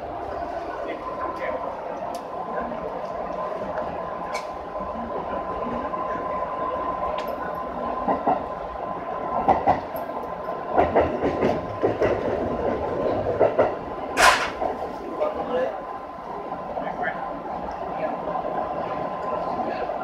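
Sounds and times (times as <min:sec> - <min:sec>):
electric train running rumble: 0:00.0 - 0:20.0
wheels clattering over rail joints: 0:10.7 - 0:15.0.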